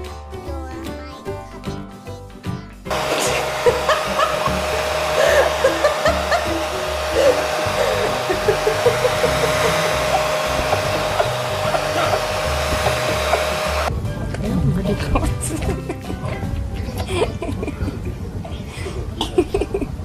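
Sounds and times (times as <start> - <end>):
pet dryer blowing air: 2.9 - 13.9.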